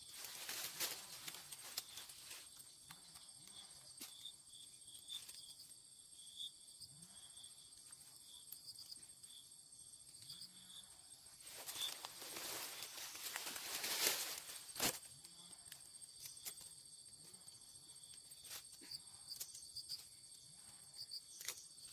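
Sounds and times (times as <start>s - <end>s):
insects chirping: 0.0s - 21.9s.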